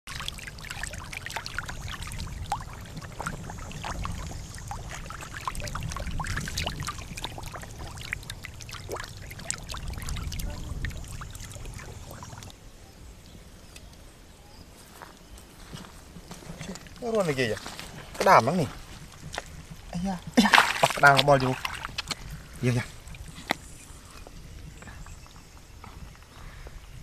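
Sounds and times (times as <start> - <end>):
fish splashing and flopping: 0.1 - 12.5, 16.3 - 24.0
water pouring down a channel: 0.1 - 12.5, 20.4 - 23.4.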